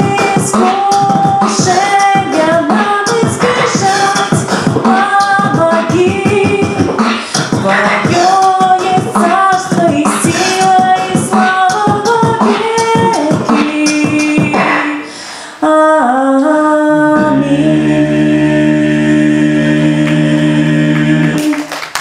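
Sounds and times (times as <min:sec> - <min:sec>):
man beatboxing: 0:00.0 - 0:15.0
woman singing a cappella: 0:00.0 - 0:21.6
lower voice singing: 0:15.6 - 0:21.7.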